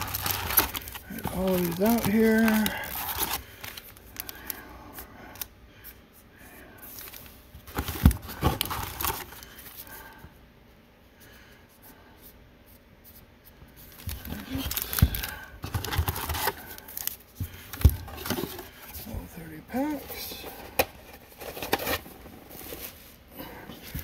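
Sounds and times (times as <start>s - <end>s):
foil packs rustling: 0.0s - 4.7s, 6.8s - 10.2s, 13.8s - 24.0s.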